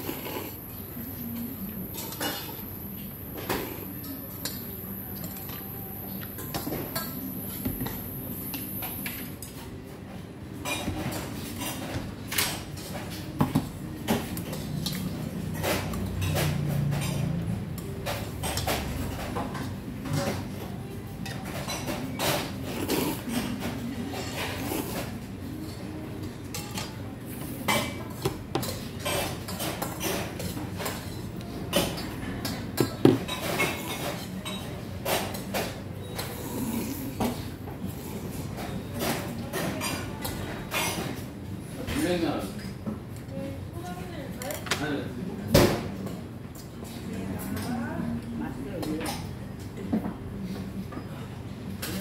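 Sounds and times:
utensils clinking on metal bowl: 14.1s - 27.0s, 27.6s - 36.4s.

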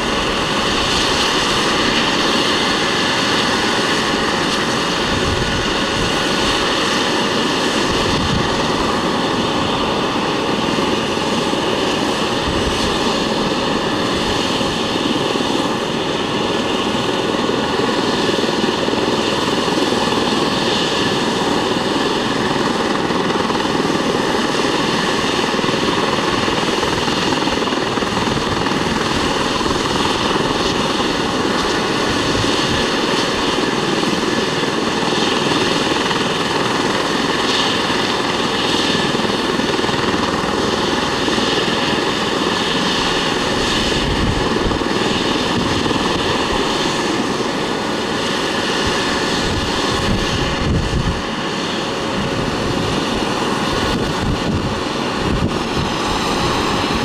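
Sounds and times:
helicopter rotor noise: 0.0s - 57.0s
helicopter turbine whine: 0.0s - 57.0s.

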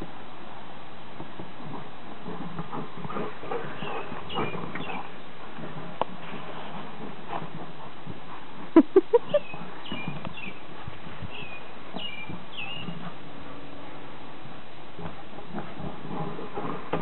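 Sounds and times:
bird chirps: 9.2s - 10.6s, 11.3s - 13.0s.

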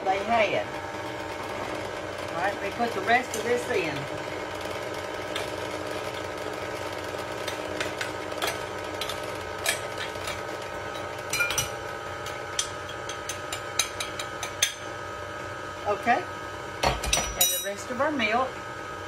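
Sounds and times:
electric mixer motor running: 0.0s - 16.8s.

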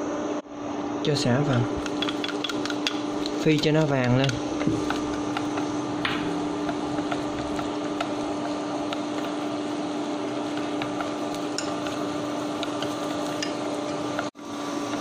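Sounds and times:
induction cooktop hum: 0.0s - 15.0s
chopsticks clicking against pot: 1.5s - 5.7s, 6.6s - 9.5s, 10.4s - 14.3s
lemongrass frying in oil: 2.0s - 15.0s.

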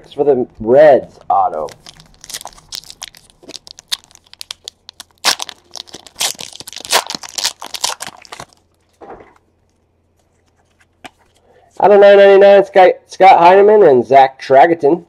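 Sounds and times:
foil wrapper crinkling and tearing: 1.5s - 8.8s.

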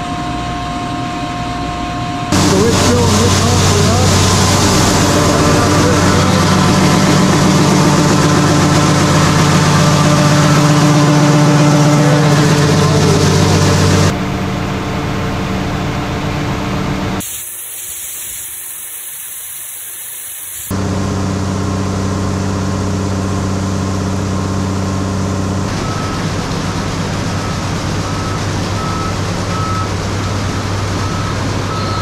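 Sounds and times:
grain pouring hiss: 2.3s - 7.8s, 17.2s - 20.7s
tractor engine hum: 2.3s - 17.2s, 20.7s - 32.0s.

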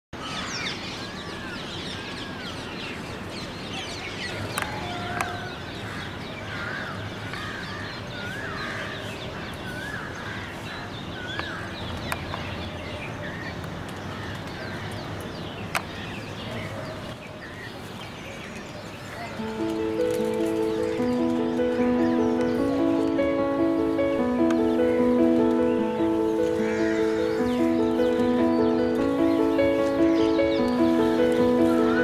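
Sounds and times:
birds chirping: 0.2s - 32.0s
bird warbled call: 19.2s - 32.0s.

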